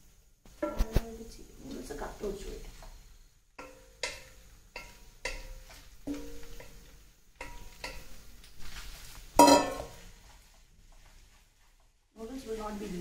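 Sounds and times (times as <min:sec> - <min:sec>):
wooden spatula knocking steel pot: 0:03.6 - 0:08.4, 0:09.3 - 0:10.2
pot clanking set down: 0:09.4 - 0:10.0.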